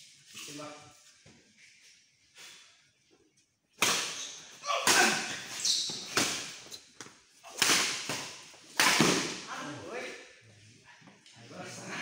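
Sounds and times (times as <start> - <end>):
racket hitting shuttlecock: 3.8 - 9.4
shoe squeal: 4.1 - 4.6, 5.2 - 6.9.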